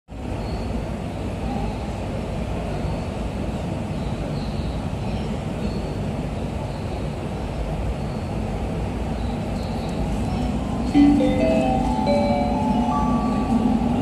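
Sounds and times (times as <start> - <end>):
subway train rumbling in tunnel: 0.1 - 14.0.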